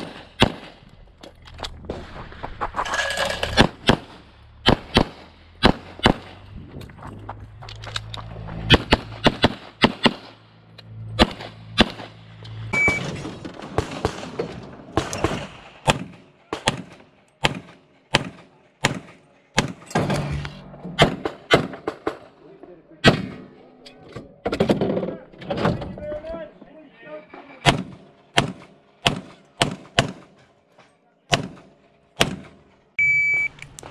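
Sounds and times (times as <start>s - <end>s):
pistol shots: 0.0s - 0.8s, 3.6s - 6.4s, 8.7s - 10.4s, 11.2s - 12.2s, 15.0s - 19.9s, 21.0s - 22.3s, 27.7s - 30.3s, 31.3s - 32.6s.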